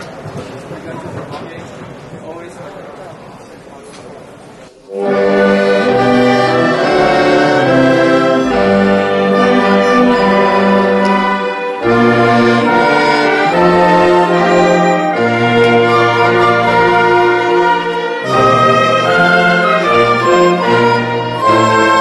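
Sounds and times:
orchestra playing sustained chords: 0:04.9 - 0:22.0.

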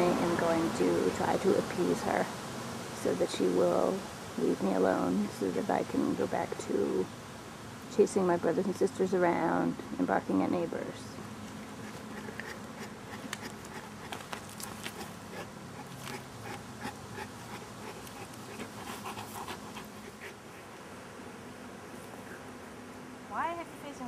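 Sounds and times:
dog panting: 0:11.8 - 0:20.7.

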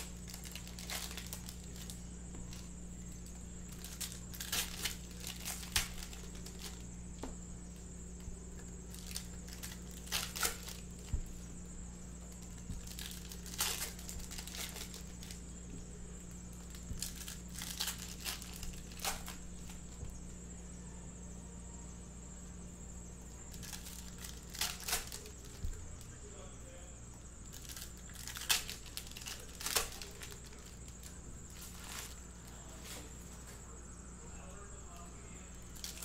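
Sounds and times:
foil wrappers tearing and crinkling: 0:00.0 - 0:06.9, 0:08.6 - 0:11.4, 0:12.1 - 0:15.5, 0:16.5 - 0:20.0, 0:23.5 - 0:25.8, 0:27.4 - 0:33.2, 0:35.7 - 0:36.0.

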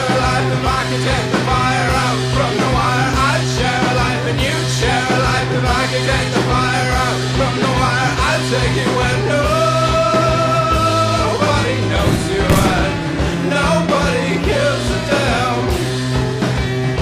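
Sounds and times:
rock music with singing: 0:00.0 - 0:17.0.

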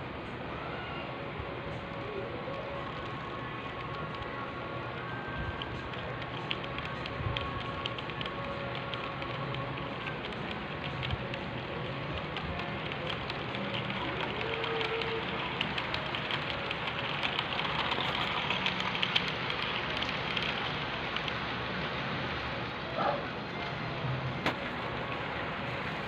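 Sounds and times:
model train rolling on track: 0:01.9 - 0:22.9
wheels clicking on rails: 0:02.0 - 0:22.5.

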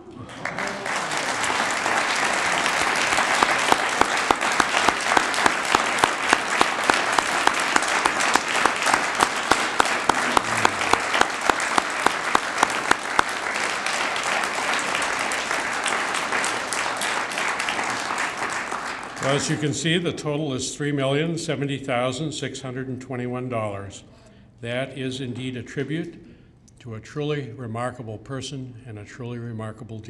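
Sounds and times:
audience applauding: 0:00.0 - 0:19.6
close regular hand claps: 0:00.1 - 0:19.5.

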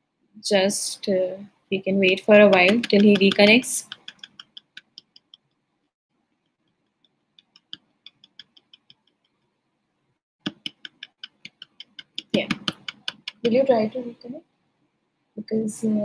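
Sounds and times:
computer keyboard typing: 0:02.0 - 0:05.5, 0:07.4 - 0:09.2, 0:10.4 - 0:13.6.

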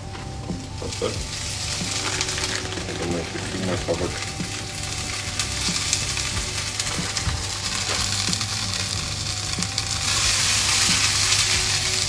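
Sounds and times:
oil popping: 0:00.0 - 0:12.0
vegetables sizzling in oil: 0:00.0 - 0:12.0.

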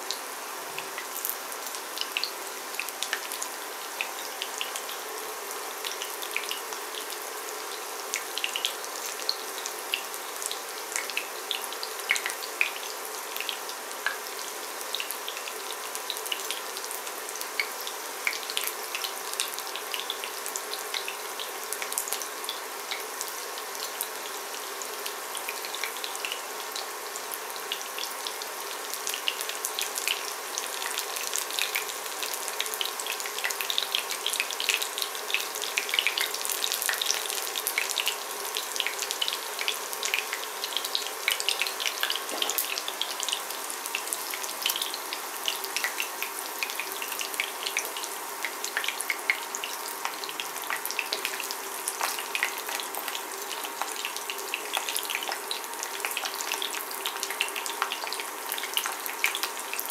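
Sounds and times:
food sizzling in oil: 0:00.0 - 0:59.9
oil crackling and popping: 0:48.6 - 0:59.9.

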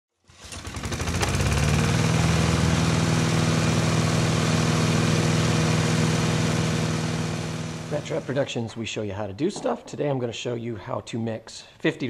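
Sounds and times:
small engine running: 0:00.2 - 0:08.5.

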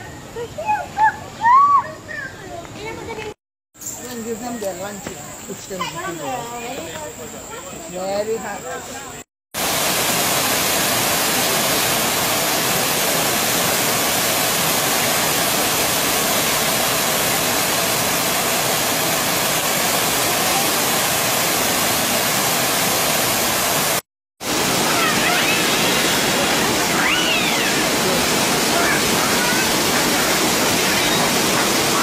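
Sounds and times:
waterfall rushing: 0:09.6 - 0:32.0.

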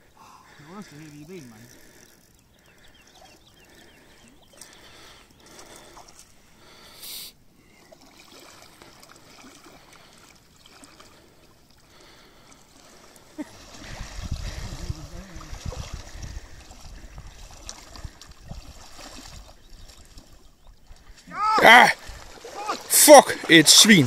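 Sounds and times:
water splashing: 0:07.8 - 0:24.0.

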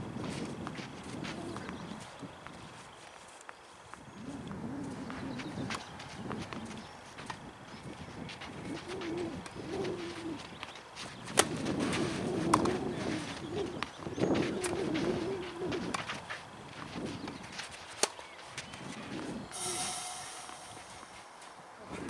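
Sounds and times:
bird cooing: 0:04.2 - 0:05.7, 0:08.6 - 0:10.5, 0:12.2 - 0:15.9.

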